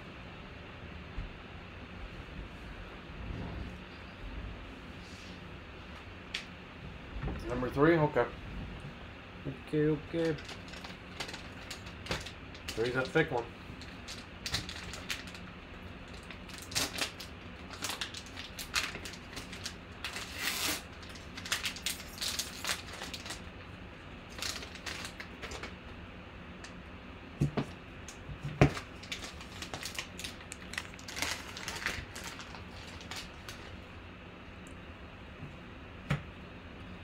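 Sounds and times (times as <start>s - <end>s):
foil wrapper crinkling and tearing: 10.1s - 25.8s, 28.6s - 33.8s.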